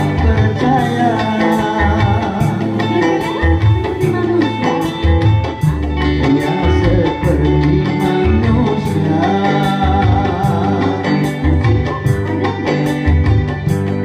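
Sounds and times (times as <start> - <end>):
live band playing: 0.0 - 14.0.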